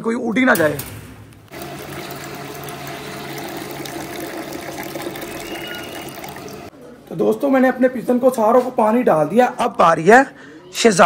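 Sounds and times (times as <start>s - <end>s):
tap water filling plastic bowl: 1.5s - 6.7s.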